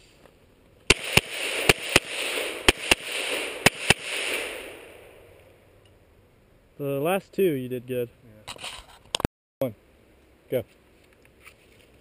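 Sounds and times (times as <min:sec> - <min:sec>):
pistol shots with echo: 0:00.9 - 0:05.2.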